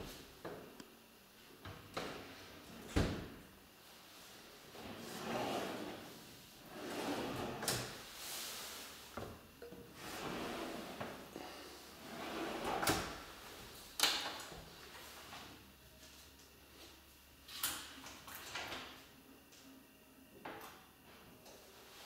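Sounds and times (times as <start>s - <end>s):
drawers sliding on runners: 4.8s - 8.0s, 10.0s - 11.1s, 12.0s - 13.1s.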